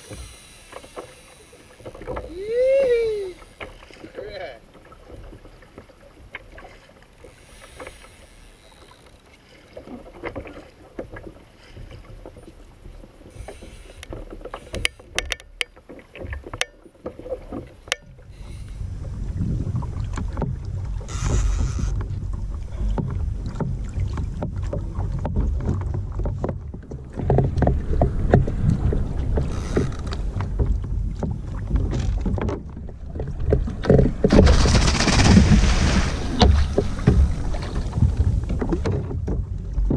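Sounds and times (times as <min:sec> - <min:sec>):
water splashing against kayak hull: 0:00.0 - 0:39.9
wind buffeting microphone: 0:18.3 - 0:39.9.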